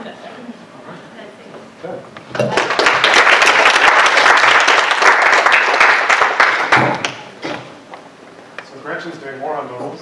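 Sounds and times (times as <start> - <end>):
audience applauding: 2.5 - 7.3.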